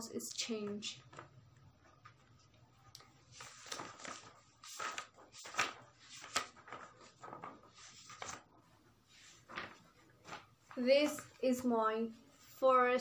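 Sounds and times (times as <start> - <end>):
paper rustling: 1.0 - 11.4.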